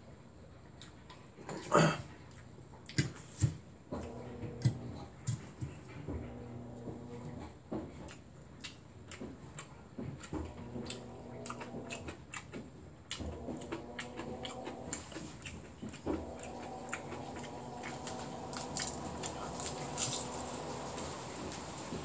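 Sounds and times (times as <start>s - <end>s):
washing machine running: 3.9s - 7.7s, 10.2s - 22.0s
person chewing: 8.0s - 21.7s.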